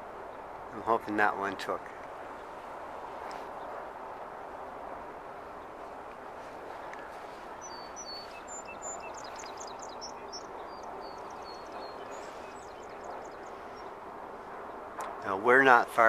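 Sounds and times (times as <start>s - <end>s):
steady background hiss: 0.0s - 16.0s
birds chirping and trilling: 5.1s - 15.8s.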